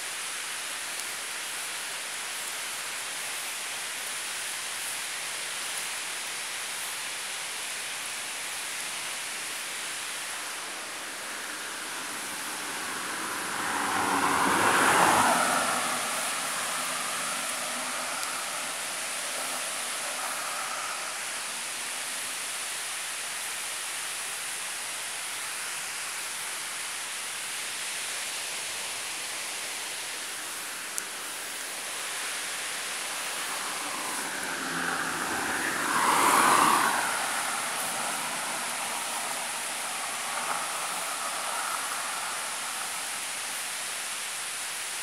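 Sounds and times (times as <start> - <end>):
steady rushing noise: 7.6 - 45.0
vehicle passing by: 10.2 - 22.6, 31.5 - 44.8.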